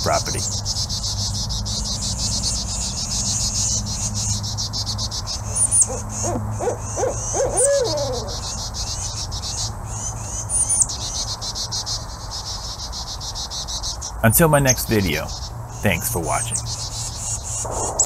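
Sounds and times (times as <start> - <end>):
insects chirring: 2.6 - 9.2, 17.6 - 18.0
owl hooting: 5.4 - 9.2, 17.6 - 18.0.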